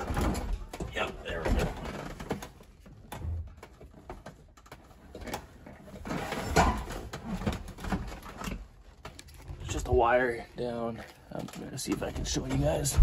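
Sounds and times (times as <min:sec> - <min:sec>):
plastic console knocking and rubbing: 0:11.5 - 0:13.0.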